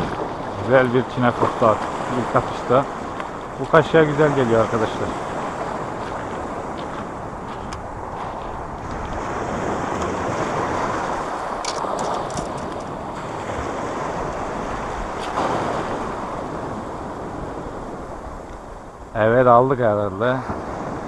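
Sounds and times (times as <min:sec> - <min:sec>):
sea waves on pebble beach: 0:00.0 - 0:19.1, 0:20.2 - 0:21.0
wind buffeting microphone: 0:00.0 - 0:21.0.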